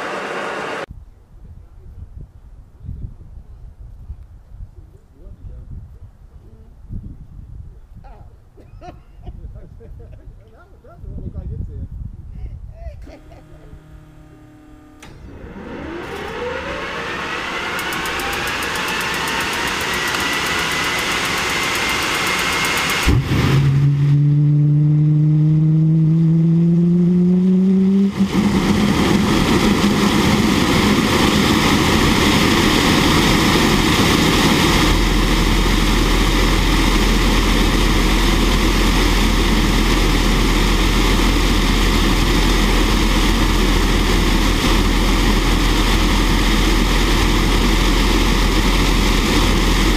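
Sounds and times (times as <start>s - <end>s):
jet engine starting up: 0.0s - 0.9s, 13.1s - 26.2s, 27.1s - 49.9s.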